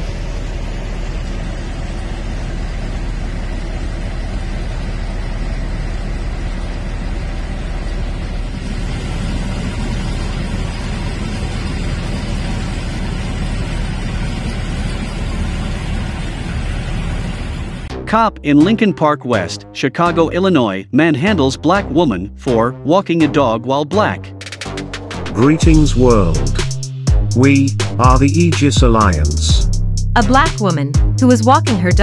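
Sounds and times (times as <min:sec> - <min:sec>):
vehicle engine idling: 0:00.0 - 0:18.2, 0:24.6 - 0:32.0.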